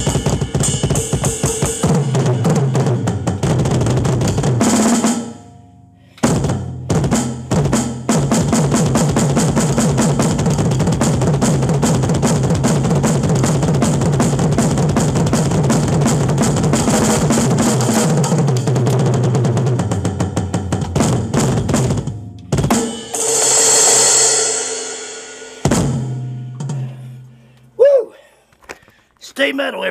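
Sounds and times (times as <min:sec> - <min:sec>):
drum kit solo: 0:00.0 - 0:05.6, 0:06.2 - 0:27.2.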